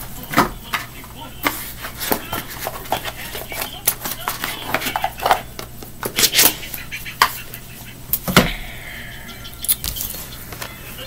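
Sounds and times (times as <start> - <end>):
low steady hum: 0.0 - 11.0
cards shuffling: 0.7 - 7.4.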